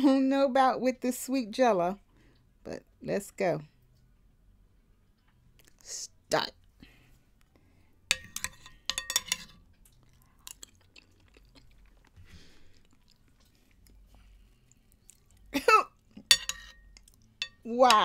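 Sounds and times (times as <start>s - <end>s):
soft chewing and mouth sounds: 4.8s - 5.9s, 9.4s - 17.4s
metal spoon clinking: 8.1s - 9.6s, 16.2s - 18.0s.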